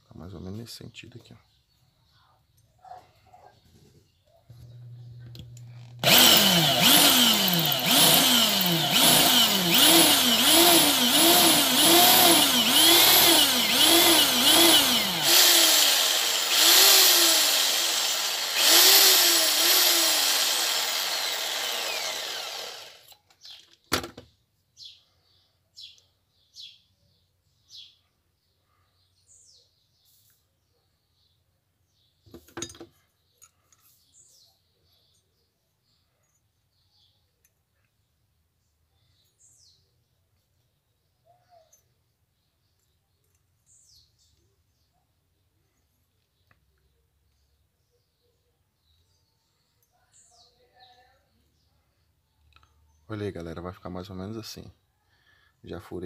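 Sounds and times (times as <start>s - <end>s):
electric drill drilling metal: 5.4s - 23.6s.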